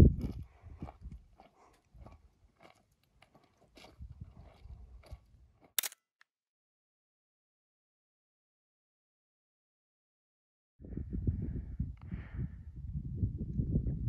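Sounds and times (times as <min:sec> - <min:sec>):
footsteps on gravelly rock: 0:00.2 - 0:06.0.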